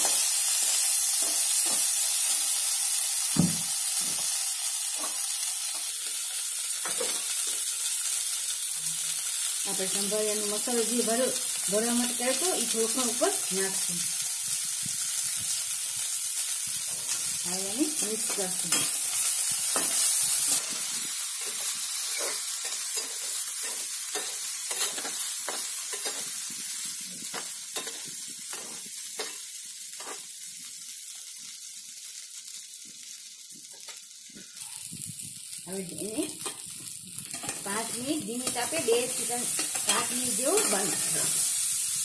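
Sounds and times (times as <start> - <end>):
okra sizzling in oil: 0.0 - 42.0
spoon scraping a metal pan: 21.4 - 26.3.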